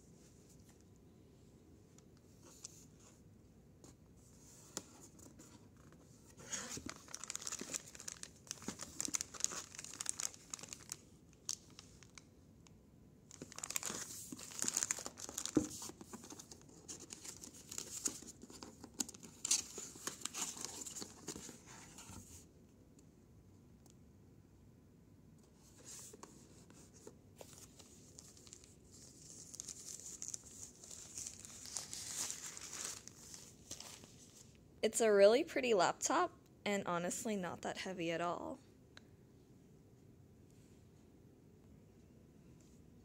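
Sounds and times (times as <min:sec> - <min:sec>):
plastic bag crinkling: 0:06.6 - 0:12.2, 0:13.3 - 0:21.5, 0:27.7 - 0:34.2.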